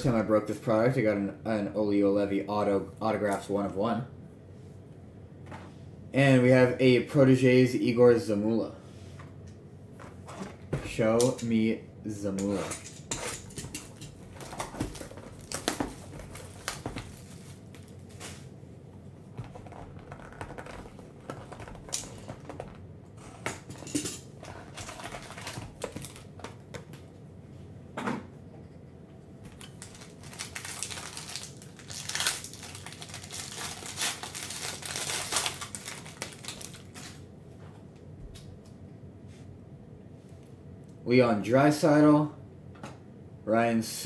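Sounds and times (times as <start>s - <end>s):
foil wrapper tearing and crinkling: 14.3s - 18.3s, 19.6s - 22.7s, 24.6s - 26.5s, 29.5s - 37.2s.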